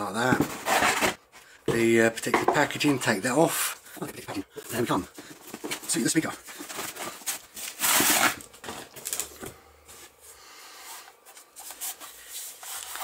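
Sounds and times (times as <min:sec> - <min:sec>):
plastic wrap crinkling: 0:04.7 - 0:09.4.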